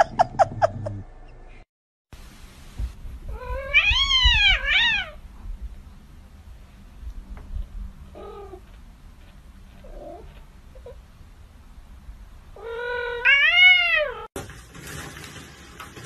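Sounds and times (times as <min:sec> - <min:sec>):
cat mewing: 0:03.3 - 0:05.2, 0:12.6 - 0:14.3
long loud cat meow: 0:03.3 - 0:05.2.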